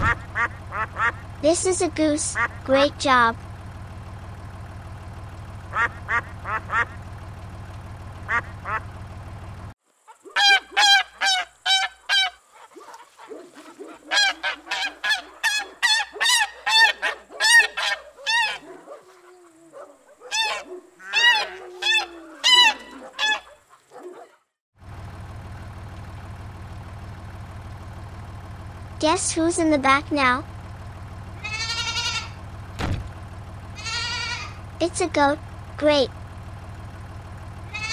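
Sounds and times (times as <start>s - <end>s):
geese gabbling: 0.0s - 1.4s, 2.2s - 2.9s, 5.6s - 7.1s, 8.2s - 9.0s, 10.0s - 24.3s, 31.4s - 32.5s, 33.7s - 34.8s, 37.6s - 37.9s
geese honking: 0.0s - 1.4s, 2.2s - 2.9s, 5.6s - 7.2s, 8.2s - 9.1s, 10.1s - 24.0s, 31.3s - 32.6s, 33.7s - 34.8s, 37.6s - 37.9s
tractor engine hum: 0.0s - 37.9s.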